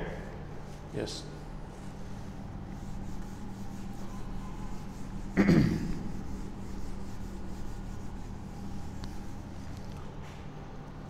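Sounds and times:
steady low hum: 0.0 - 11.0
duster rubbing on whiteboard: 1.6 - 10.4.

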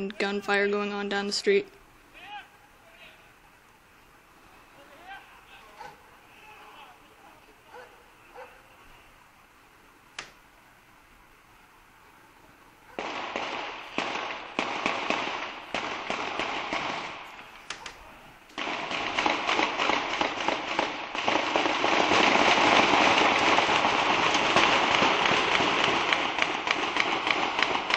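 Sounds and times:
rapid sharp pops and bangs: 13.0 - 27.9.

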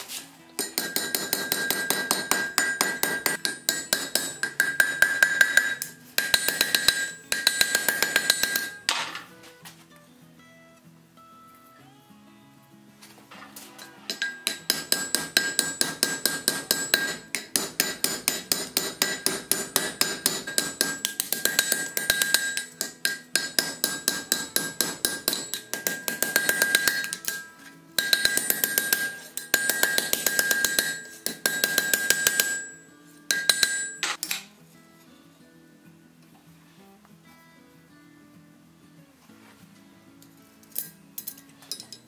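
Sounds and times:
hammer striking iron on anvil: 0.6 - 9.2, 14.1 - 34.5.

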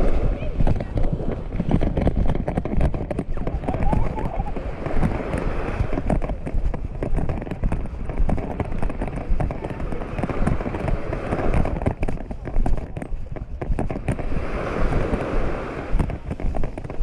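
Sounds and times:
faint voices: 0.0 - 1.6, 3.1 - 5.4, 6.2 - 13.7
small waves on shore: 0.0 - 17.0
wind buffeting microphone: 0.0 - 17.0.

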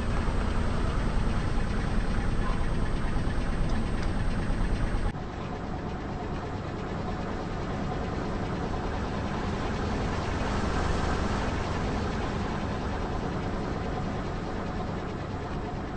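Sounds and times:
car engine running slowly: 0.0 - 5.6.

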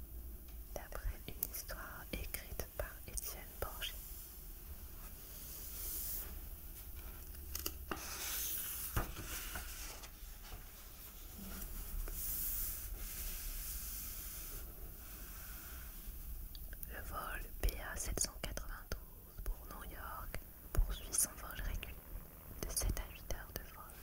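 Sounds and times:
page turning rustle: 6.8 - 11.8.

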